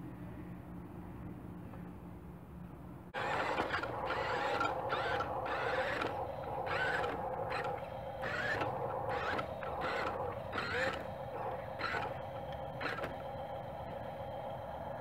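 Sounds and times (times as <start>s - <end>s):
toy truck driving over gravel: 3.2s - 13.3s
electric motor whining: 3.2s - 15.0s.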